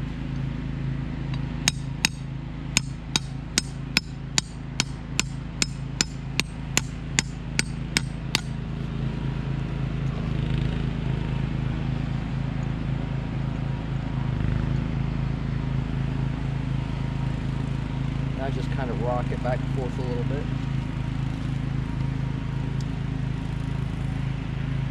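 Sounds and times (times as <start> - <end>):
hammer blows on metal: 1.3 - 8.6.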